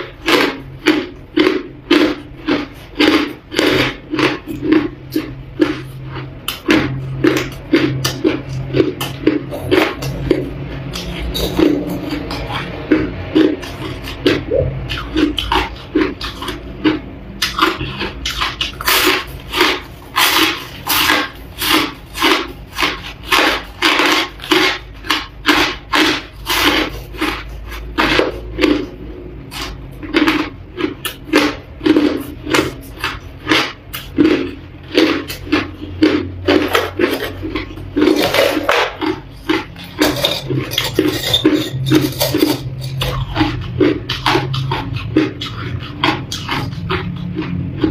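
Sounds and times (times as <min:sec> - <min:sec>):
ice being chewed: 0:00.0 - 0:47.9.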